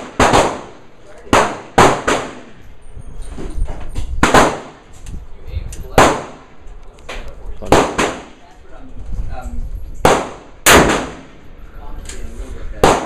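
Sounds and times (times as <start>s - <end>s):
handgun gunshots with echo: 10.0s - 11.3s.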